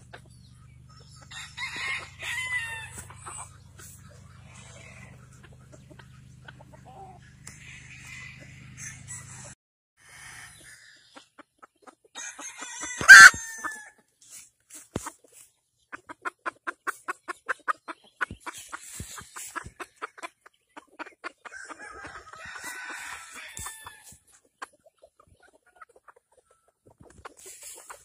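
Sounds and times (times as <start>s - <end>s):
chickens clucking: 0.0s - 28.0s
rooster crowing: 1.3s - 3.1s, 12.2s - 13.9s, 21.5s - 24.1s.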